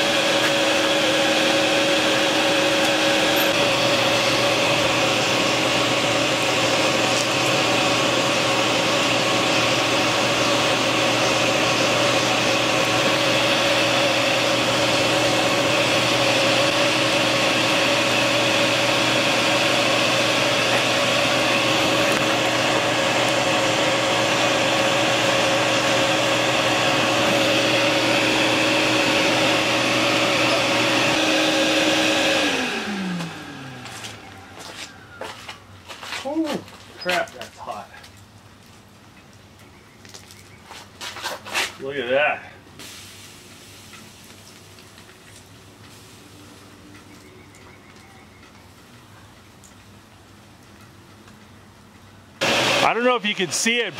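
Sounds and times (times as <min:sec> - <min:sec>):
electric air blower whining: 0:00.0 - 0:35.8, 0:52.4 - 0:53.9.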